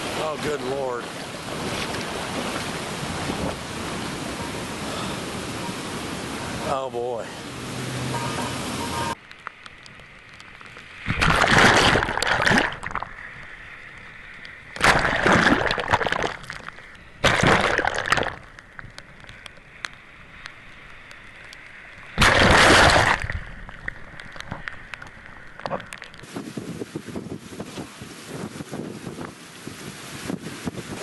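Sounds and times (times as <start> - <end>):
surf: 0.0 - 9.2
waves breaking and splashing: 0.0 - 9.2, 10.2 - 31.0
wind: 0.0 - 31.0.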